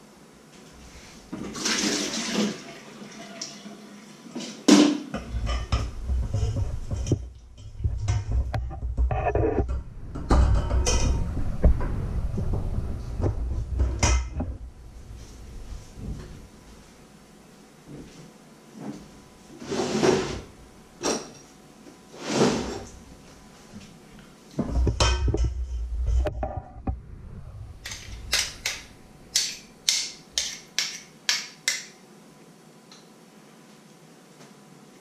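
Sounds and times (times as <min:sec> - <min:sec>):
knocking and rustling: 0:05.2 - 0:16.4, 0:24.6 - 0:31.0.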